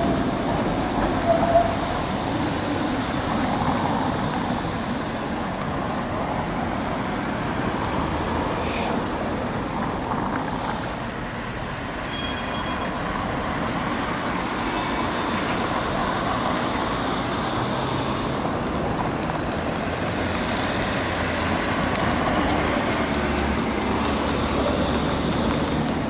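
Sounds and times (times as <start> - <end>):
road traffic noise: 0.0 - 26.0
tram wheels rumbling on rails: 0.0 - 26.0.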